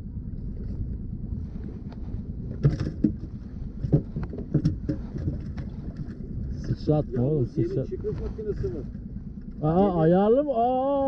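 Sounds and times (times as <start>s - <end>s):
boat motor rumbling: 0.0s - 11.0s.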